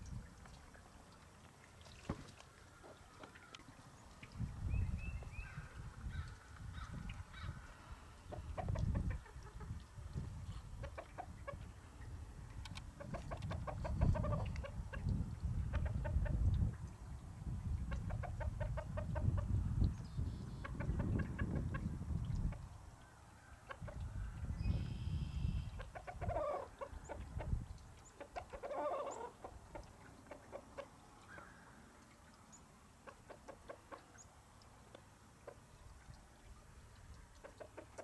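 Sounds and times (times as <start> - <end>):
wind rumble on microphone: 0.0 - 0.6, 4.2 - 23.0, 23.7 - 28.6
chickens clucking: 8.3 - 9.8, 10.6 - 11.6, 13.0 - 16.4, 17.9 - 19.5, 25.7 - 31.0, 33.0 - 34.1, 37.4 - 38.0.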